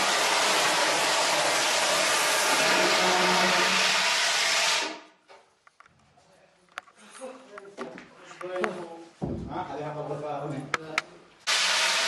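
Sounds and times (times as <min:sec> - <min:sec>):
fire extinguisher hissing: 0:00.0 - 0:05.2, 0:11.4 - 0:12.0.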